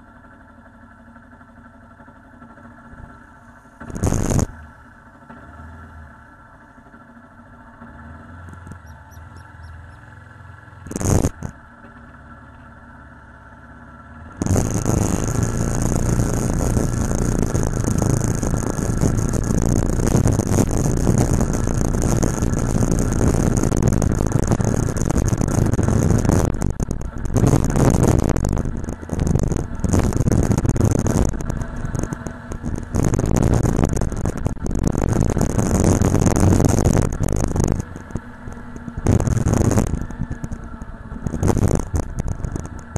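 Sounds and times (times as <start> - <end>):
motorcycle engine idling: 0.0 - 42.9
motorcycle riding engine: 0.0 - 42.9
wind rushing over microphone: 14.4 - 42.9.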